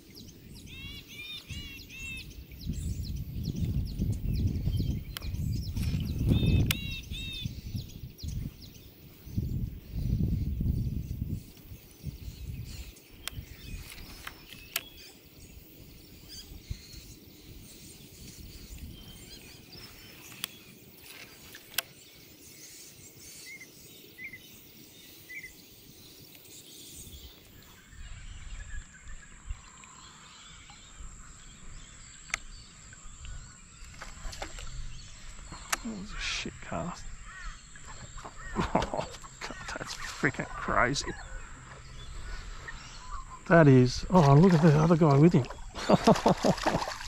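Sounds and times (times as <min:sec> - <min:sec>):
birds calling: 0:00.0 - 0:47.0
sharp clicks: 0:06.6 - 0:06.8, 0:13.2 - 0:14.9, 0:21.7 - 0:21.9.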